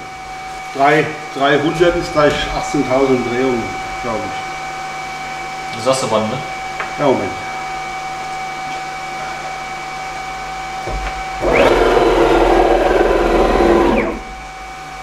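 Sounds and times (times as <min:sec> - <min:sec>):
spindle whining: 0:08.7 - 0:14.6
stepper motors whirring: 0:11.4 - 0:14.4.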